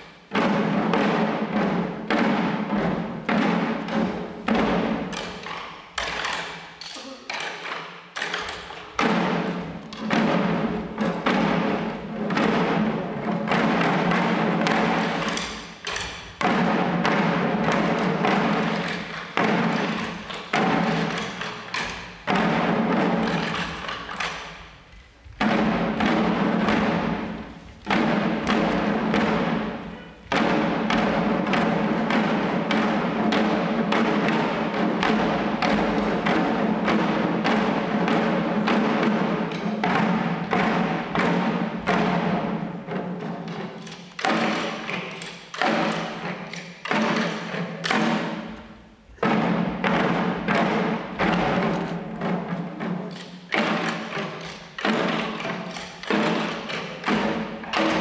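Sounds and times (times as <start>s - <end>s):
fast small drum strikes: 0.0s - 58.0s.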